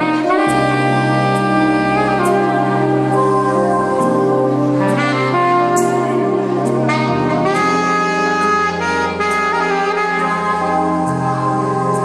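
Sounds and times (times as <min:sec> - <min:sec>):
bass line: 0:00.0 - 0:12.0
saxophone melody: 0:00.0 - 0:12.0.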